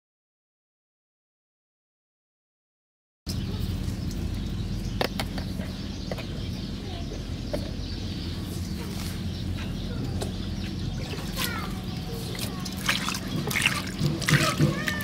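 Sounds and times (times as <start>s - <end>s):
steady low hum: 3.3s - 15.0s.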